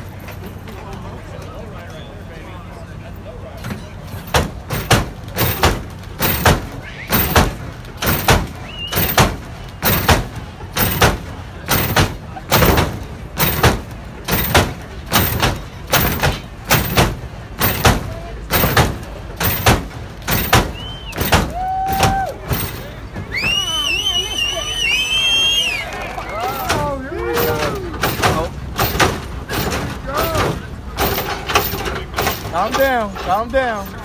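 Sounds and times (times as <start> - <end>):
hydraulic car landing clunks: 3.6 - 23.8, 26.4 - 33.8.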